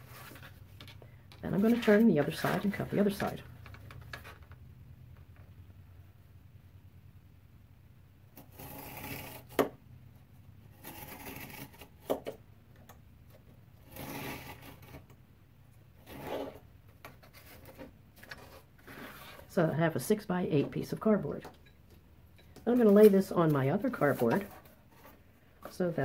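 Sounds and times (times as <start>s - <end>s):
knife scraping along steel ruler: 8.4s - 9.7s, 10.7s - 11.9s, 13.8s - 15.1s, 16.0s - 16.6s
craft knife slicing cardboard: 8.4s - 9.8s, 10.7s - 12.4s, 13.8s - 15.1s.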